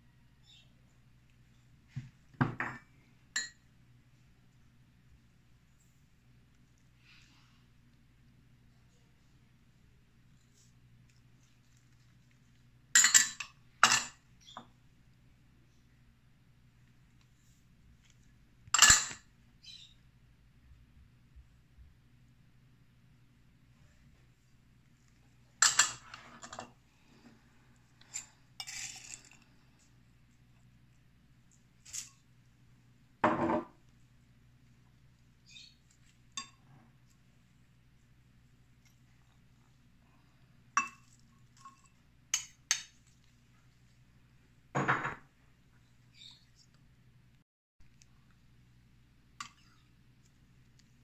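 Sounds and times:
utensils clinking on dishes: 0:13.0 - 0:14.2
dishes clattering: 0:44.8 - 0:45.2.

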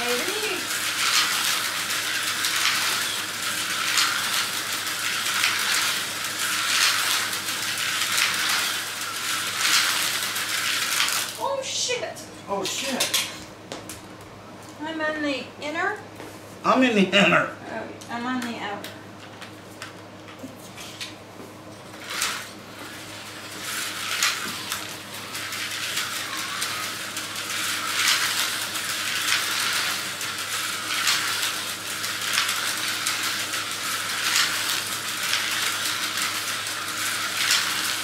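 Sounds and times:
slot cars whirring: 0:00.0 - 0:11.8, 0:21.9 - 0:38.0.

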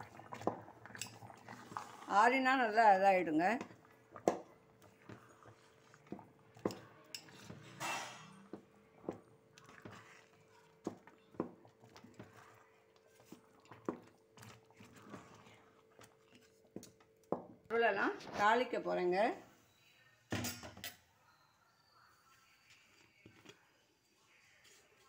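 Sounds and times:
metal spoon scraping a pan: 0:07.1 - 0:08.5.

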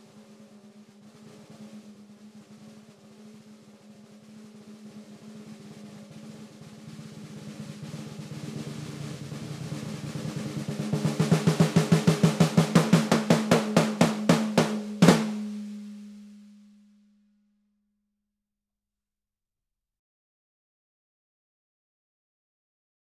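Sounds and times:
snare drum roll and strokes: 0:00.0 - 0:16.4.

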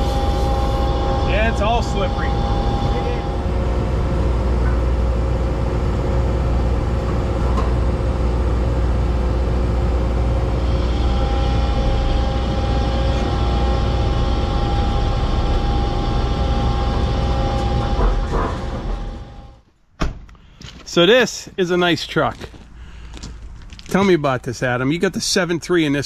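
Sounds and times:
diesel truck engine rumbling: 0:00.0 - 0:19.6
steady whine: 0:00.0 - 0:19.7.

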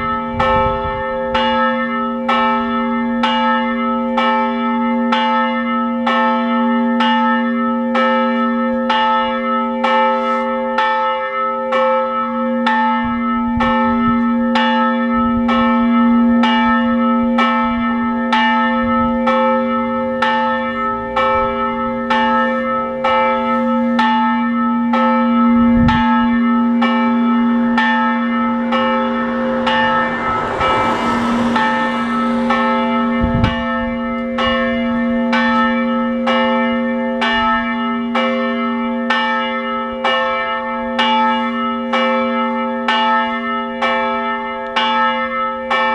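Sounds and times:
church bell ringing: 0:00.0 - 0:45.9
rushing noise: 0:28.5 - 0:34.1.

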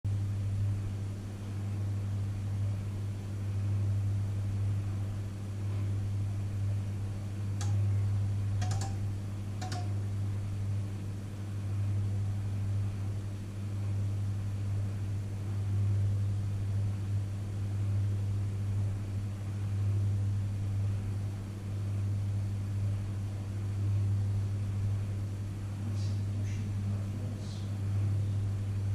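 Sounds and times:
microwave oven humming: 0:00.1 - 0:28.9
faint clicks: 0:07.6 - 0:07.8, 0:08.6 - 0:09.0, 0:09.6 - 0:09.9.

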